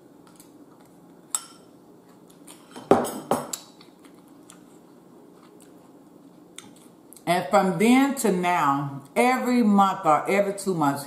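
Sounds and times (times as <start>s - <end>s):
cutlery clinking against bowl: 1.3s - 1.7s, 2.5s - 3.6s.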